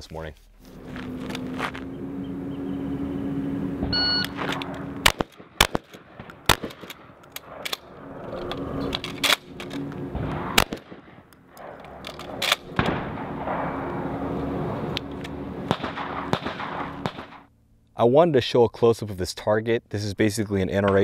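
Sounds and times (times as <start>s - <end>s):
shotgun shots: 3.8s - 7.7s, 9.2s - 14.3s, 15.6s - 17.5s.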